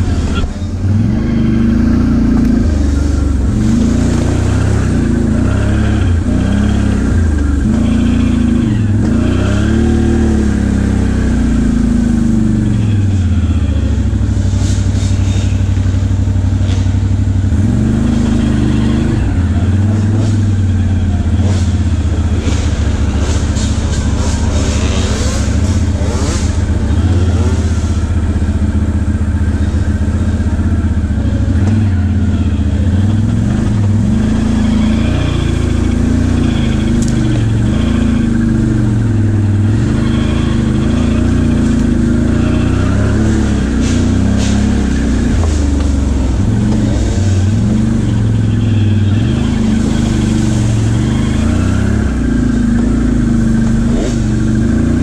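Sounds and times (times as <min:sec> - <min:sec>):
atv engine revving: 0:00.0 - 0:55.0.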